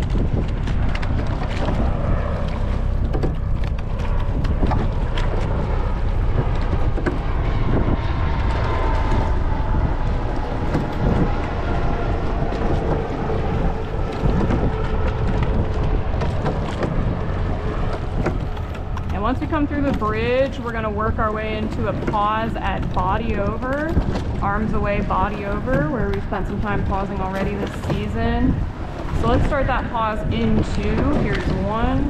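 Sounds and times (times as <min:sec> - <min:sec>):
oars knocking in oarlocks: 0:00.0 - 0:20.8
water noise of rowing boat: 0:00.0 - 0:32.0
wind buffeting microphone: 0:00.0 - 0:32.0.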